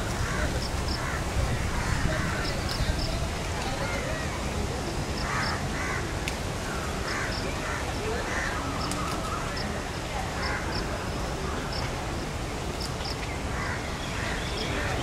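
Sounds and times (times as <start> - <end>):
outdoor background noise: 0.0 - 15.0
crows cawing: 0.1 - 2.6, 5.2 - 8.6, 13.6 - 14.3.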